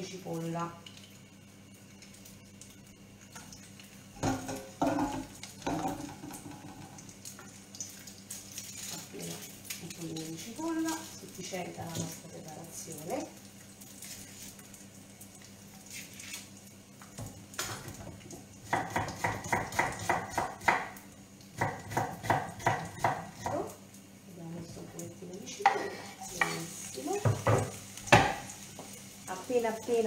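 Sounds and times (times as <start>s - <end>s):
knife chopping on wooden board: 18.7s - 20.9s, 21.6s - 23.6s.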